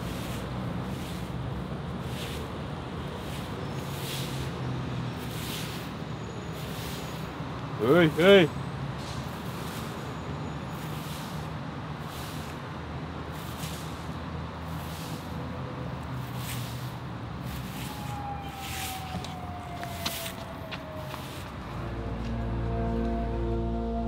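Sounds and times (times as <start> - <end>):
distant traffic rumble: 0.0 - 24.0
soft swishing strokes: 16.2 - 21.6
soft music: 21.7 - 24.0.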